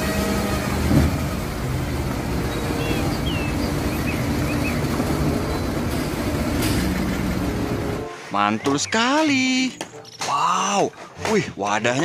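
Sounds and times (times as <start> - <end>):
truck diesel engine running: 0.0 - 8.2.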